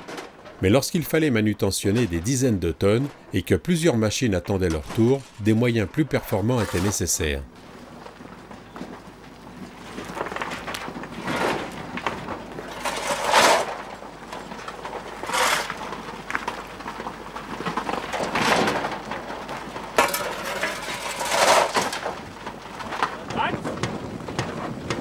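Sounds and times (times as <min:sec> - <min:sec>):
shovels scraping coal: 0:04.2 - 0:07.5, 0:09.7 - 0:25.0.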